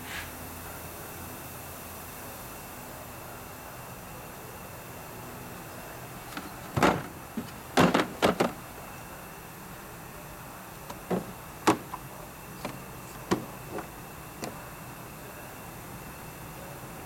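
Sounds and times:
plastic case latches clicking: 10.9s - 12.0s.

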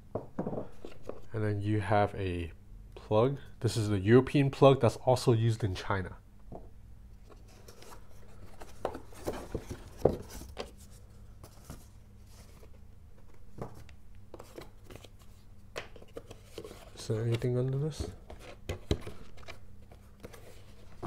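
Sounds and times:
low steady hum: 0.0s - 21.0s
cardboard box and foam handled: 7.4s - 12.7s.

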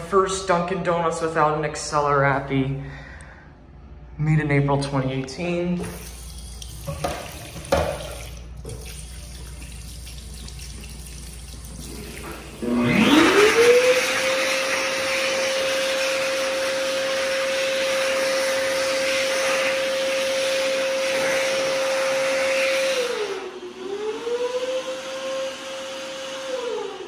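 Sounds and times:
hand dryer motor whine: 10.8s - 27.0s.

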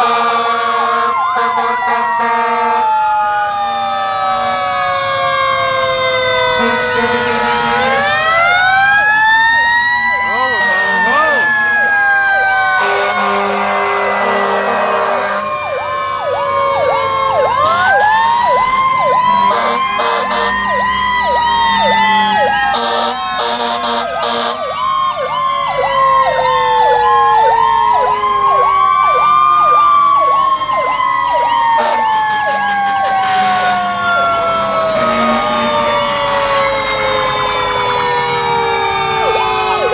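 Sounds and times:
low steady horn tone: 0.0s - 2.9s, 6.6s - 8.0s, 12.8s - 15.5s, 19.3s - 20.7s, 22.7s - 24.6s, 31.8s - 33.9s, 35.0s - 37.4s
fire engine sirens wailing: 0.0s - 39.9s
siren yelp: 0.0s - 39.9s.

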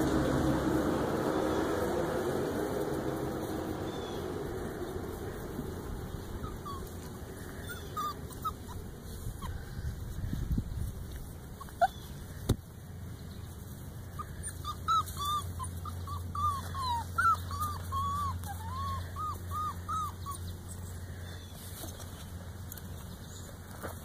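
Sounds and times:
puppy whimpering: 6.1s - 10.1s, 11.5s - 12.3s, 14.2s - 20.9s.

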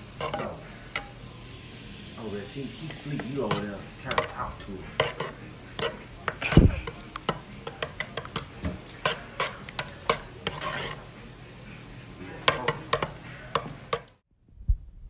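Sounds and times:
spoon scraping a pot: 0.2s - 1.2s, 2.8s - 11.2s, 12.3s - 14.2s
spoon stirring thick sauce: 0.2s - 1.2s, 2.7s - 14.2s.

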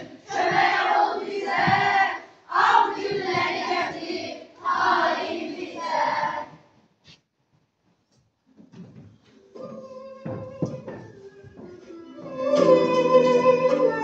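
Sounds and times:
children's choir singing: 0.0s - 6.8s, 12.2s - 14.0s.

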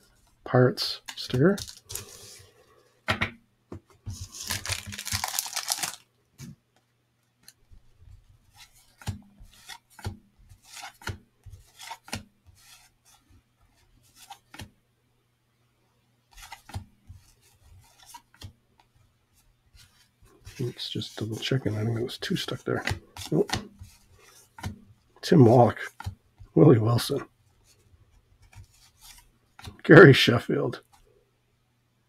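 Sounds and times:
cellophane wrapper tearing: 4.3s - 6.1s
cards sliding and tapping: 8.5s - 14.7s, 16.3s - 18.9s, 19.8s - 24.8s, 28.4s - 29.8s.

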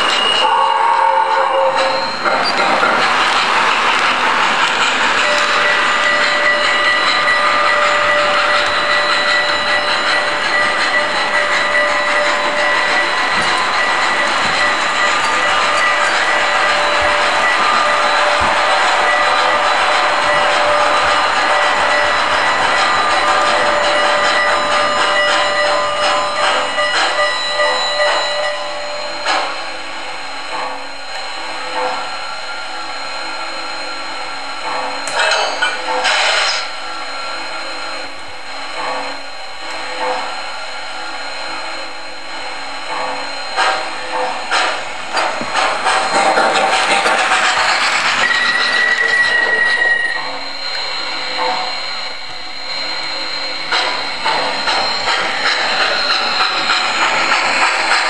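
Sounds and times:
soft steam chuffs: 0.0s - 58.0s
model train clattering on rails: 1.8s - 28.6s, 34.6s - 36.7s, 42.9s - 50.0s, 53.7s - 58.0s
thin steady squeal: 5.1s - 29.8s, 30.8s - 58.0s.

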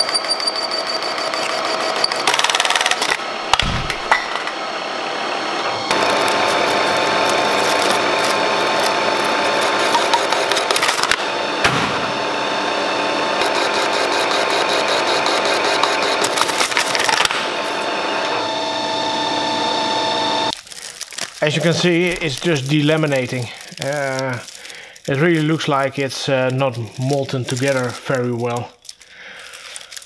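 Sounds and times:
boring bar cutting metal: 0.0s - 19.6s
metal lathe whine: 0.0s - 20.6s
sharp knocks: 3.6s - 4.3s.

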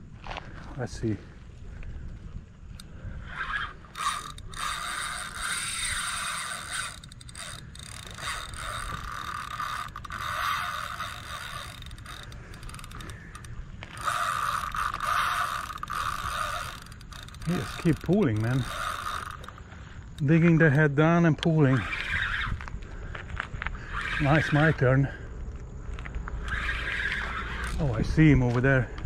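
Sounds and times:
fishing reel drag buzzing: 2.7s - 22.7s, 23.7s - 25.2s, 26.3s - 28.8s.

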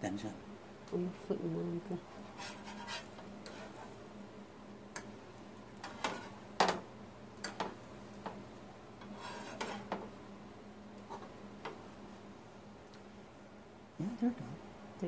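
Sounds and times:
spatula scraping on griddle: 2.1s - 4.0s, 5.8s - 6.5s, 9.0s - 10.0s.

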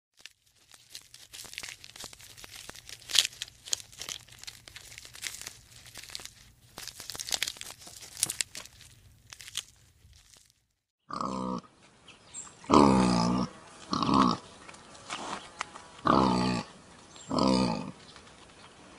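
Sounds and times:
giraffe chewing leaves: 0.2s - 10.6s, 13.7s - 17.2s
pigs grunting: 11.1s - 11.7s, 12.7s - 14.5s, 16.0s - 16.7s, 17.3s - 18.0s.

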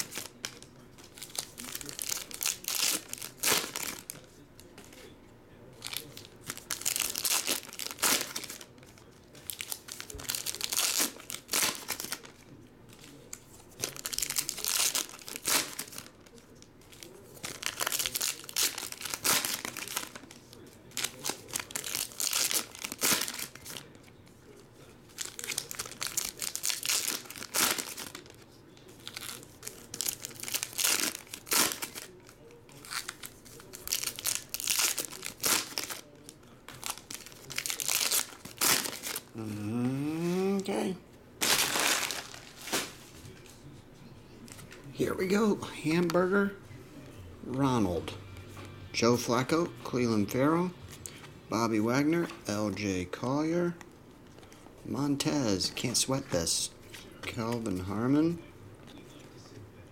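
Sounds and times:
foil wrappers crinkling and tearing: 0.0s - 5.1s, 5.8s - 39.4s, 41.4s - 43.6s.

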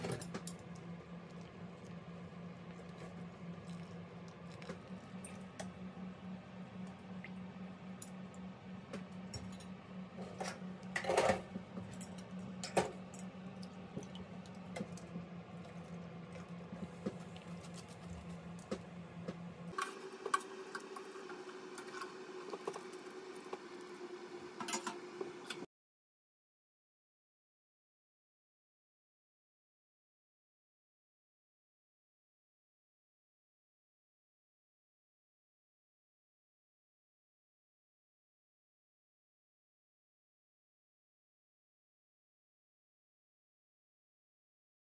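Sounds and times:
low hum: 0.0s - 25.7s.

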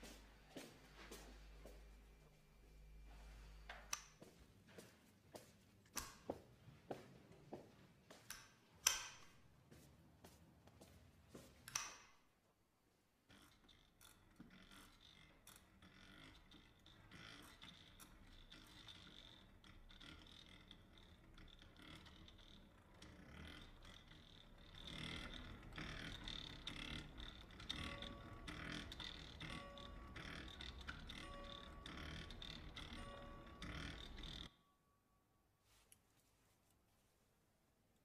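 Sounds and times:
exercise bike creaking and clicking: 13.2s - 34.6s.

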